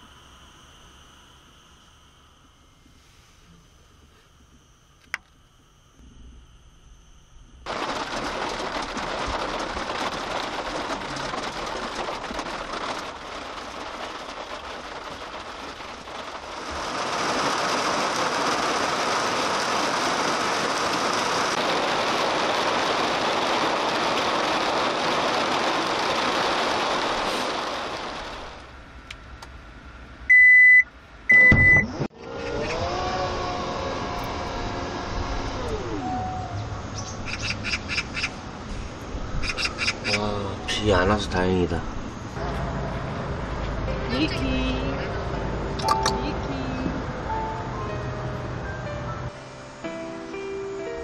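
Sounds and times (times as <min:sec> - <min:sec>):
rain hiss: 0:07.2 - 0:30.2, 0:34.1 - 0:51.0.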